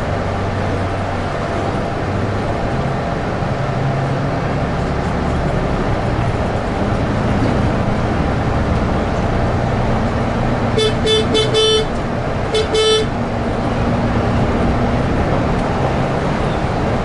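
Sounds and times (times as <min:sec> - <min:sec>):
bus engine drone: 0:00.0 - 0:17.0
road noise: 0:00.0 - 0:17.0
bus horn short high toots: 0:10.7 - 0:13.2.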